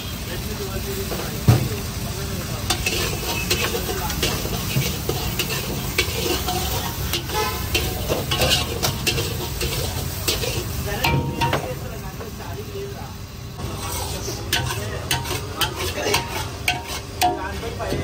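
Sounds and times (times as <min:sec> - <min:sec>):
rice sizzling in pan: 0:00.0 - 0:18.0
metal spatula scraping pan: 0:02.7 - 0:11.5, 0:13.6 - 0:18.0.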